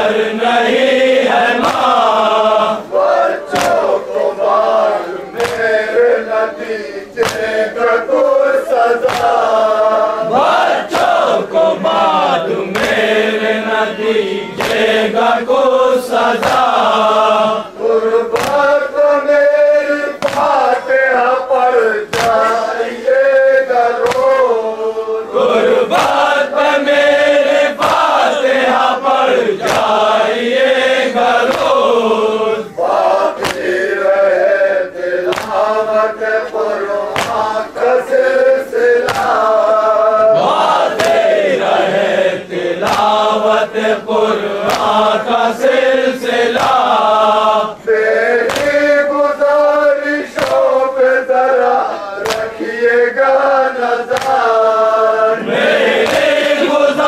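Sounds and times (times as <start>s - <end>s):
men chanting in unison: 0.0s - 57.0s
hands slapping chests: 1.6s - 2.1s, 3.5s - 4.0s, 5.2s - 5.8s, 7.2s - 7.6s, 8.9s - 9.5s, 10.6s - 11.4s, 12.6s - 13.1s, 14.6s - 15.0s, 16.4s - 17.0s, 18.3s - 18.8s, 20.2s - 20.7s, 22.1s - 22.6s, 24.0s - 24.4s, 25.9s - 26.3s, 27.7s - 28.3s, 29.6s - 30.2s, 31.4s - 32.0s, 32.9s - 33.9s, 35.2s - 35.9s, 36.5s - 37.6s, 39.0s - 39.6s, 40.4s - 41.4s, 42.8s - 43.4s, 44.6s - 45.2s, 46.5s - 47.1s, 48.4s - 49.0s, 50.3s - 50.8s, 52.2s - 52.7s, 54.1s - 54.6s, 55.6s - 56.7s.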